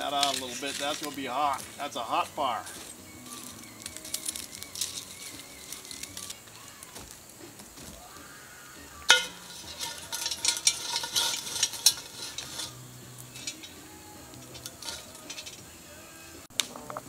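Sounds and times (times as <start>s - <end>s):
cast iron pot clanking: 0.0s - 6.4s, 9.1s - 15.8s
metal tool scraping coals: 0.0s - 16.6s.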